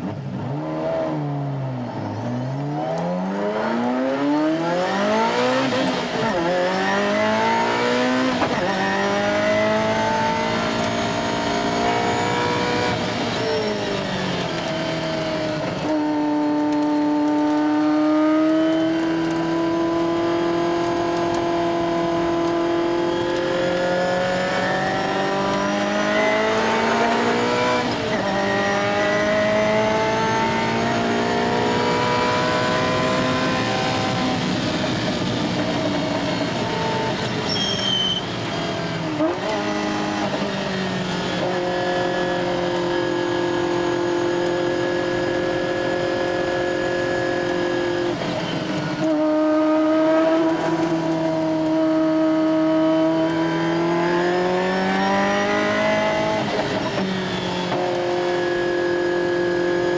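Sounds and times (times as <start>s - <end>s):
car engine accelerating: 0.0s - 59.9s.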